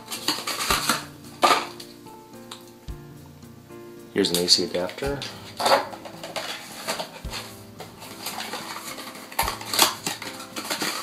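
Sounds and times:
cardboard packaging rustling: 0.0 - 2.0, 4.4 - 11.0.

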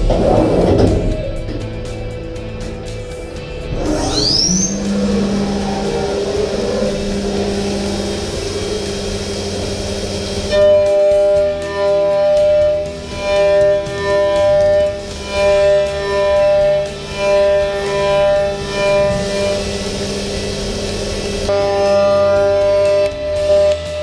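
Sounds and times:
machining center humming: 0.0 - 24.0
milling cutter whining: 0.0 - 24.0.

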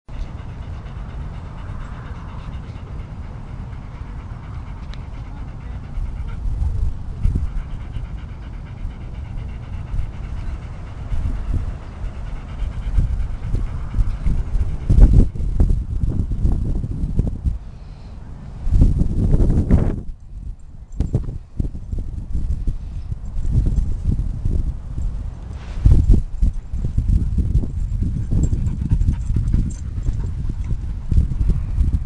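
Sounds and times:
dog panting: 0.1 - 16.3, 25.7 - 32.0
wind buffeting microphone: 0.1 - 32.0.

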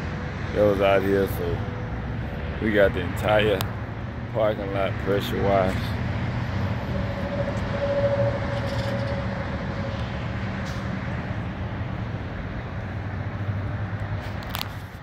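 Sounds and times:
traffic rumble: 0.0 - 15.0
faint engine tone: 4.4 - 12.8.

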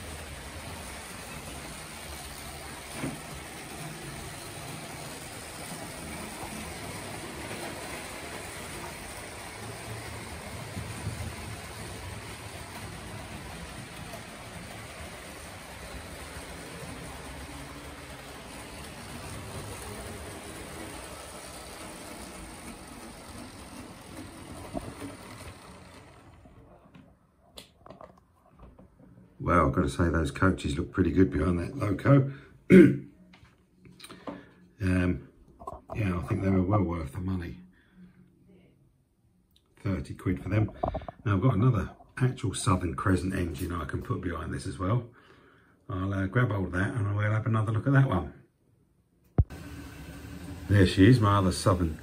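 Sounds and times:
model train motor humming: 0.0 - 26.8, 49.5 - 52.0
wheels running on track: 0.0 - 27.1, 49.4 - 52.0.

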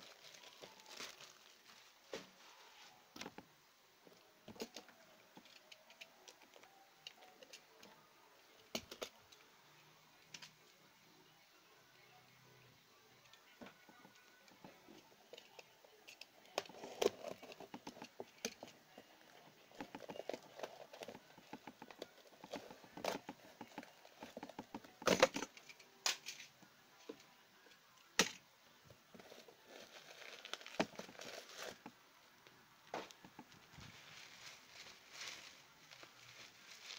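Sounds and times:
packing tape crinkling: 0.0 - 3.4, 29.1 - 31.9, 33.1 - 36.9.

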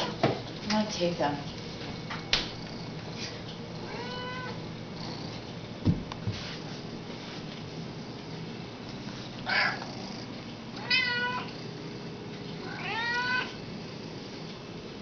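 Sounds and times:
cat meowing: 3.8 - 4.6, 10.8 - 11.5, 12.6 - 13.6.

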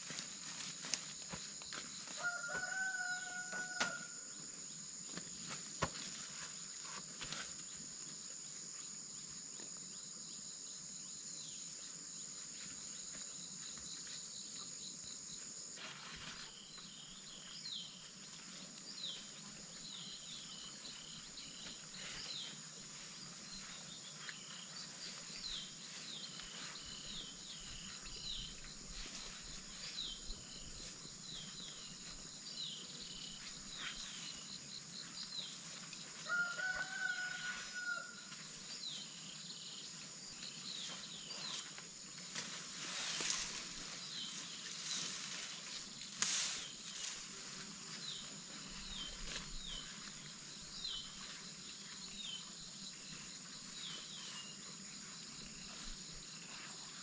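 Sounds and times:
insect high-pitched drone: 19.2 - 57.0.

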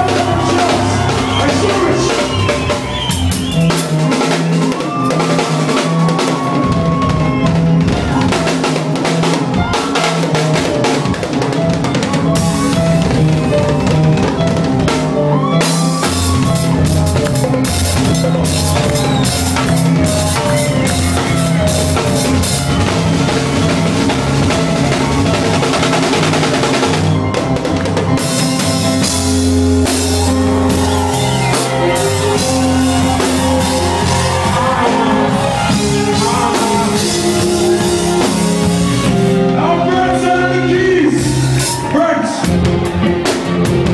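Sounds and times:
drum kit beat: 0.0 - 43.9
live band music: 0.0 - 43.9
low bass line: 12.3 - 41.6.

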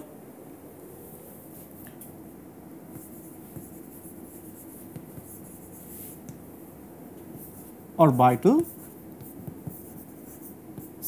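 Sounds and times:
chalk scratching on chalkboard: 2.9 - 6.2, 7.4 - 11.0.

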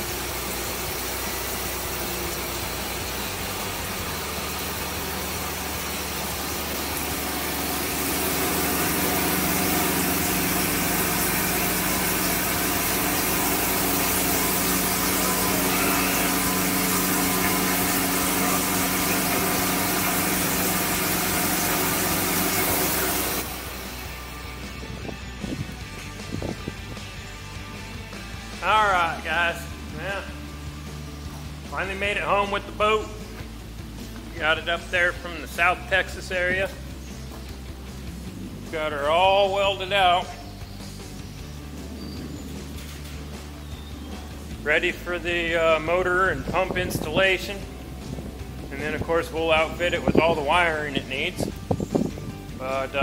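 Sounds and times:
cutting hiss: 0.0 - 24.4
milling machine hum: 0.0 - 25.0.

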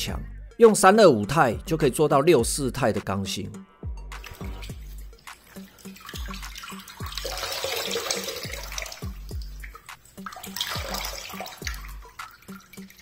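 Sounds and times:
background music beat: 0.0 - 13.0
tap water splashing into sink: 4.2 - 13.0
wet towel being wrung: 4.2 - 13.0.

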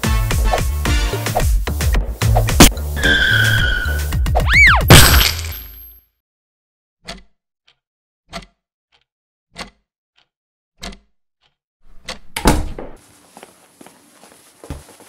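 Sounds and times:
wall clock ticking: 7.1 - 12.2
door opening with a clunk: 12.0 - 13.0.

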